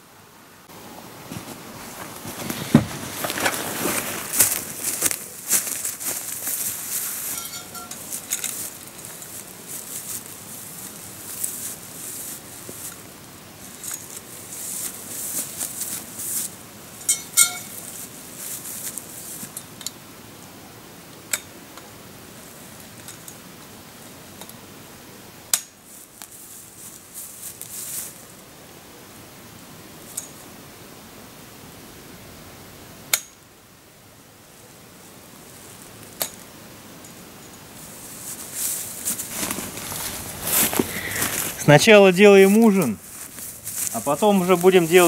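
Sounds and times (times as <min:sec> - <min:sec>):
bag and fabric rustling: 0:01.2 - 0:16.6, 0:37.8 - 0:45.0
metal tubes clinking: 0:05.5 - 0:10.2, 0:17.0 - 0:17.8.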